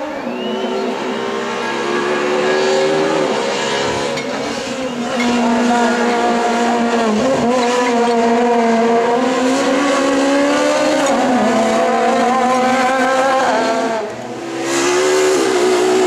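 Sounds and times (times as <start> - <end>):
rally car engine at high revs: 0.0 - 16.0.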